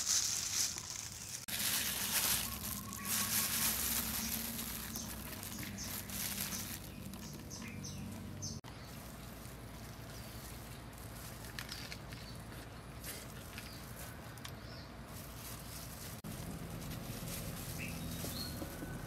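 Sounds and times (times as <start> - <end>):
plastic gloves rustling: 0.0 - 14.3, 15.0 - 19.0
soft wrap being handled: 0.0 - 19.0
bird chirps: 2.2 - 9.0, 17.7 - 19.0.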